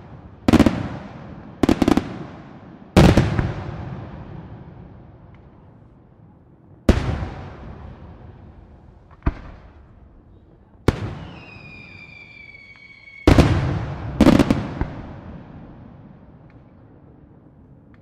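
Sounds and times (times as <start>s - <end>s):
fireworks bursting with bangs: 0.0s - 4.6s, 6.9s - 16.8s
falling whistle: 11.2s - 13.3s.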